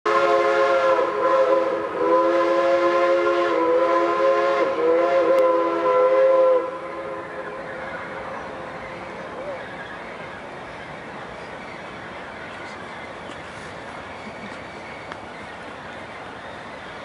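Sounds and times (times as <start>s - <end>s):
steam locomotive chime whistle: 0.1s - 7.6s.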